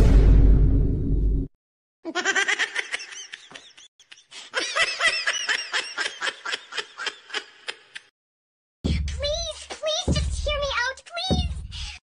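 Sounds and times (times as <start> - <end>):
high-pitched laughter: 2.1 - 8.1.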